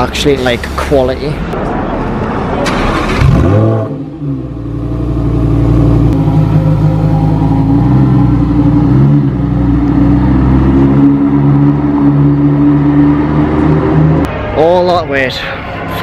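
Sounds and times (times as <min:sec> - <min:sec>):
car engine at low revs: 0:03.2 - 0:14.3.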